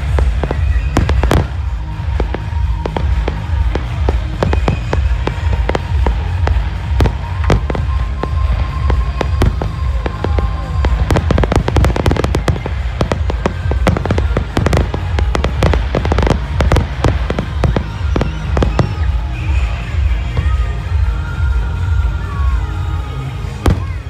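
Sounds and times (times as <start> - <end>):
fireworks bursting and crackling: 0.0 - 24.0.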